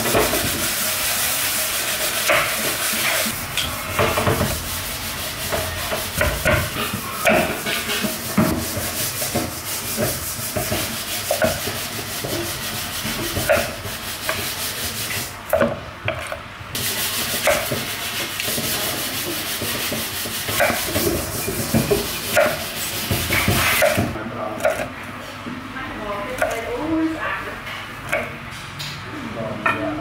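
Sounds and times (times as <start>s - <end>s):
knife scraping through vegetable: 0.0s - 3.4s, 16.8s - 24.8s.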